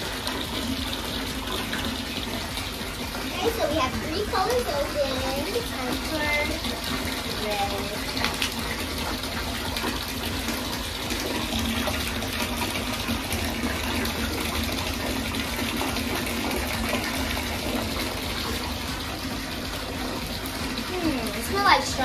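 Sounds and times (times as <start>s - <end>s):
water pouring into bathtub: 0.0s - 22.0s.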